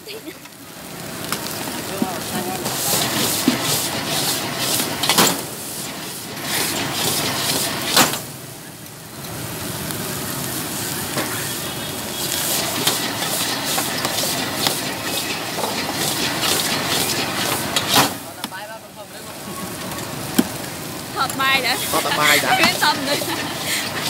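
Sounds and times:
rice sizzling in a wok: 0:00.0 - 0:24.0
ladle and spatula scraping: 0:12.4 - 0:18.0.

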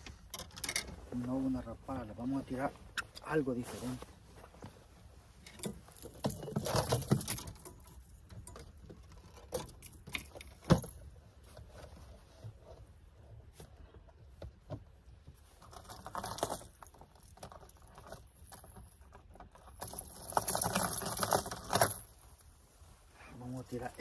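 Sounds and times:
fishing tackle clicks and rattles: 0:00.0 - 0:01.0, 0:05.4 - 0:11.1, 0:15.6 - 0:22.1.

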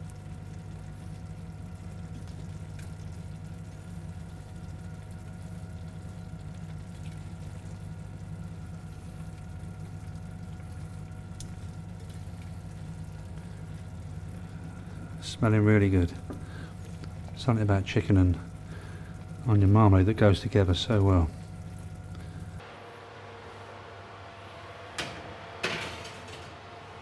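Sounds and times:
low background hum: 0:00.0 - 0:27.0.

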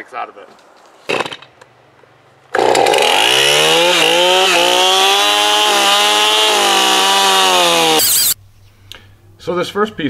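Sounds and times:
chainsaw revving: 0:02.5 - 0:08.4.

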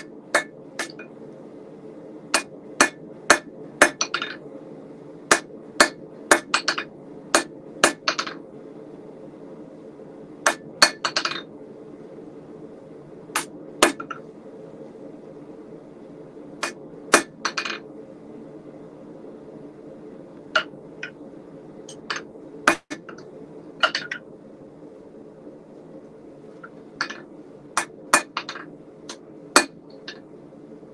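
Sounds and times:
hammer ringing on chisel and anvil: 0:05.3 - 0:06.8.

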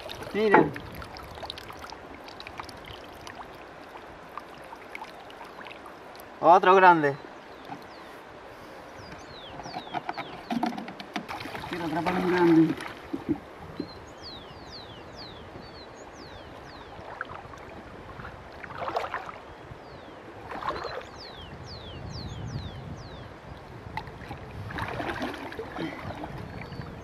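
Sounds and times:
loud water splashes: 0:00.0 - 0:05.9, 0:11.2 - 0:13.4, 0:18.5 - 0:19.4, 0:24.2 - 0:26.8
water sloshing around legs: 0:00.0 - 0:06.3, 0:09.6 - 0:13.4, 0:17.0 - 0:19.5, 0:20.4 - 0:21.2, 0:24.0 - 0:26.8.

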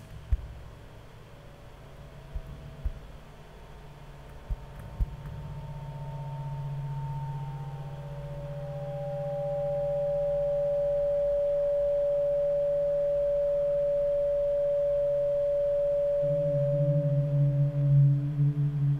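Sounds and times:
low hum: 0:00.0 - 0:18.9
electronic pure tones: 0:04.3 - 0:18.9.

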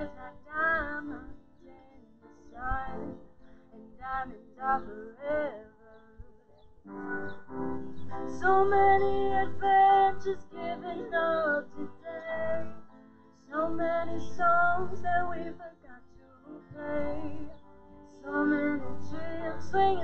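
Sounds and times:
woman singing: 0:00.0 - 0:06.6, 0:08.3 - 0:20.0
musical accompaniment: 0:06.8 - 0:20.0.

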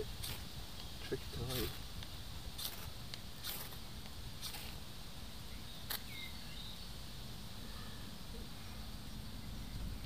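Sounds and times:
low outdoor rumble: 0:00.0 - 0:10.0
faint chirp: 0:05.4 - 0:10.0.

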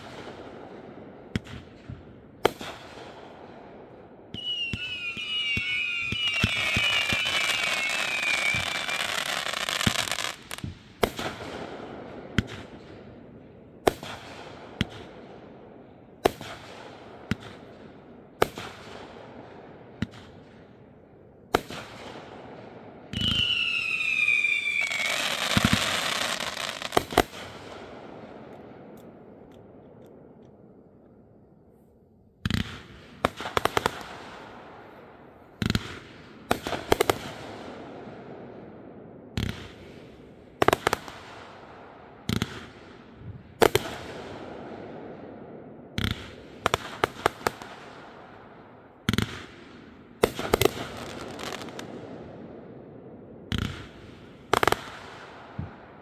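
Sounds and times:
fireworks sharp bangs: 0:00.0 - 0:20.8, 0:21.5 - 0:30.4, 0:32.4 - 0:56.0
fireworks crackling: 0:04.4 - 0:11.5, 0:23.1 - 0:28.0, 0:32.5 - 0:37.8, 0:50.2 - 0:52.0.

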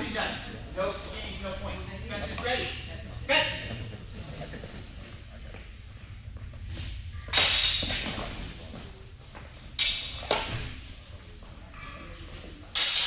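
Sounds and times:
sword blades clashing: 0:07.3 - 0:08.3, 0:09.8 - 0:10.7, 0:12.7 - 0:13.0.

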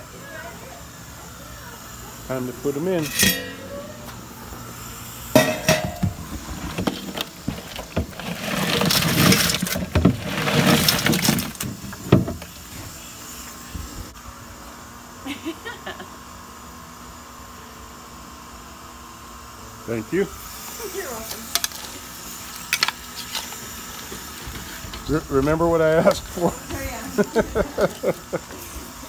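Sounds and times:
crawfish rattling into metal pot: 0:03.0 - 0:03.8, 0:05.4 - 0:12.4.

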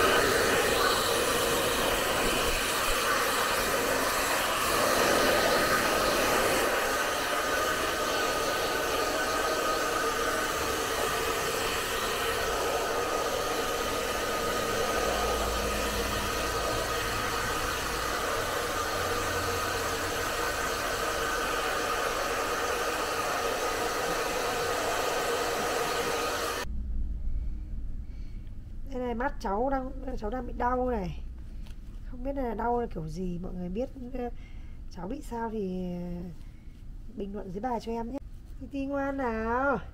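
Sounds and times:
hair dryer running: 0:00.0 - 0:26.7.

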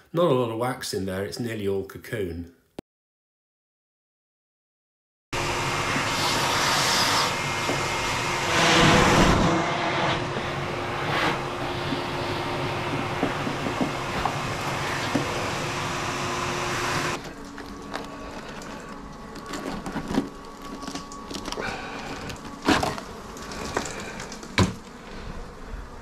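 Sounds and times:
vacuum motor whooshing: 0:05.4 - 0:26.0
wax comb crackling and scraping: 0:17.2 - 0:24.6.

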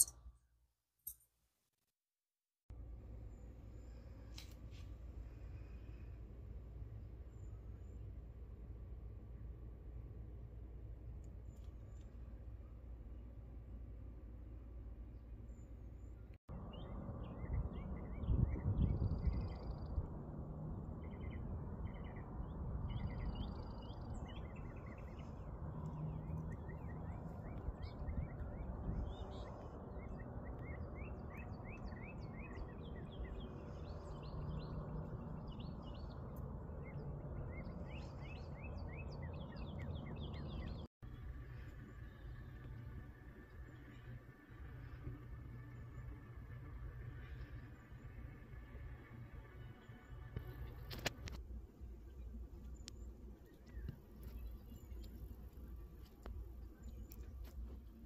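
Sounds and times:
low outdoor rumble: 0:02.7 - 0:58.0
small birds chirping: 0:21.0 - 0:58.0.

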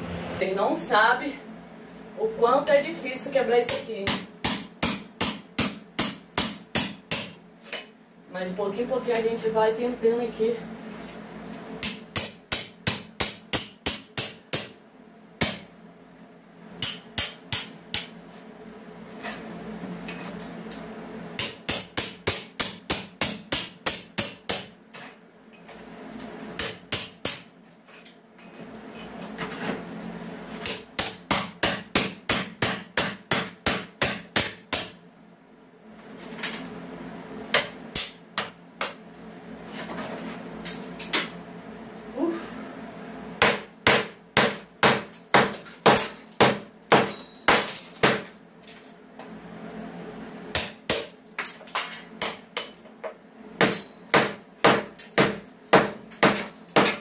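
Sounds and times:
hammer strikes: 0:03.7 - 0:07.4, 0:11.8 - 0:14.8, 0:15.4 - 0:15.7, 0:16.8 - 0:18.2, 0:21.4 - 0:24.7, 0:26.6 - 0:27.5, 0:30.6 - 0:35.0, 0:37.5 - 0:39.0, 0:43.4 - 0:48.4, 0:50.5 - 0:51.2, 0:53.6 - 0:57.0.

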